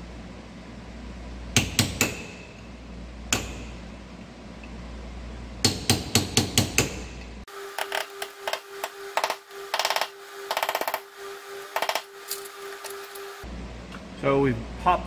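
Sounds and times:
hammer striking chisel on metal: 1.6s - 2.6s, 3.3s - 3.8s, 5.6s - 7.2s.

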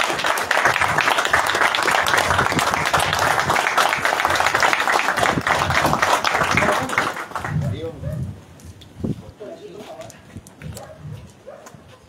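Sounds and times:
crowd applauding: 0.0s - 8.0s
voices: 0.2s - 8.3s, 9.2s - 10.6s.

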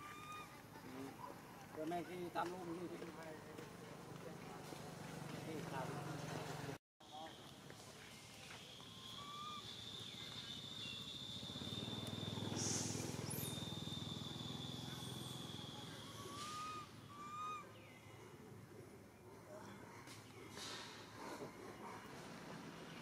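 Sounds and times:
bird chirps: 8.1s - 18.4s.

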